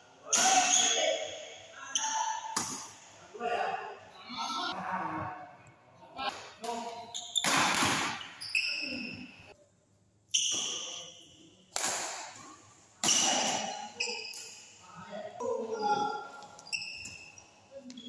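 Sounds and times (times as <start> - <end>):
rackets hitting shuttlecock: 6.3 - 8.3, 11.7 - 13.7
shoes squeaking on court: 7.1 - 9.3, 16.0 - 18.0.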